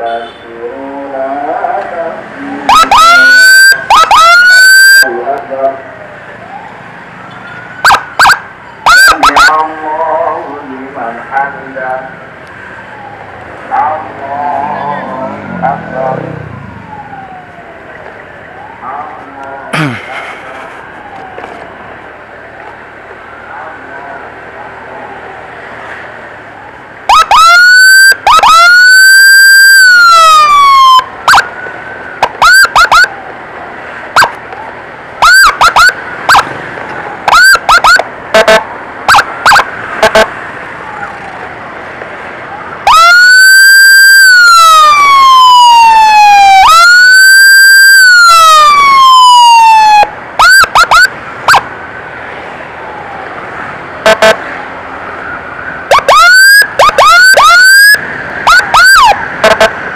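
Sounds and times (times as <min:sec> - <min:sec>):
electronic emergency siren: 0:02.5 - 0:05.2, 0:06.4 - 0:09.6, 0:14.7 - 0:18.8, 0:27.1 - 0:33.2, 0:34.1 - 0:34.4, 0:35.2 - 0:36.5, 0:37.2 - 0:40.3, 0:42.8 - 0:51.7, 0:54.0 - 0:54.4, 0:55.2 - 0:59.8.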